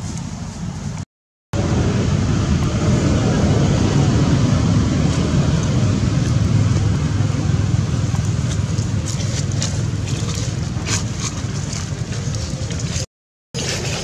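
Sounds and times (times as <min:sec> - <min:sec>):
dry leaves crackling underfoot: 0:07.7 - 0:14.0.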